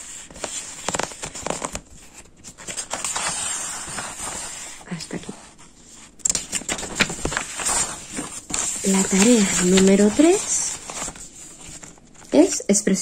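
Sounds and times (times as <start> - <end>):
paper pages rustling: 0.0 - 12.4.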